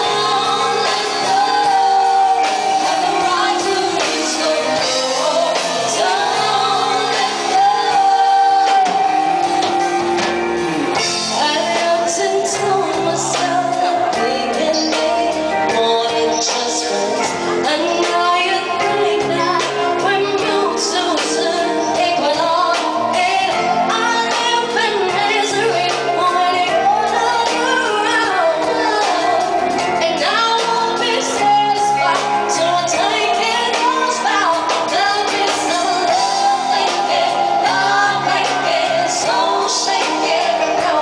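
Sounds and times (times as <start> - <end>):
bass guitar: 0.0 - 41.0
drums: 0.0 - 41.0
electric guitar: 0.0 - 41.0
keyboard: 0.0 - 41.0
woman singing: 0.0 - 41.0.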